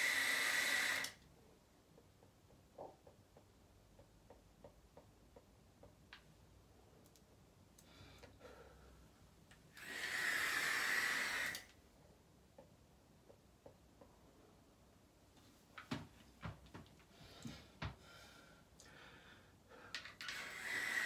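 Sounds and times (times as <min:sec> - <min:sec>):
vape airy hiss: 0:09.9 - 0:11.7, 0:20.3 - 0:21.0.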